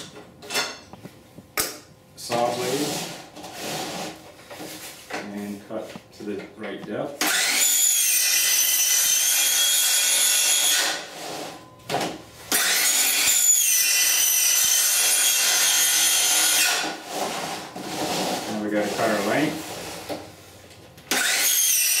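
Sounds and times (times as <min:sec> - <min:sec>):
circular saw cutting siding: 0:07.2 - 0:11.6, 0:12.5 - 0:20.2, 0:21.1 - 0:22.0.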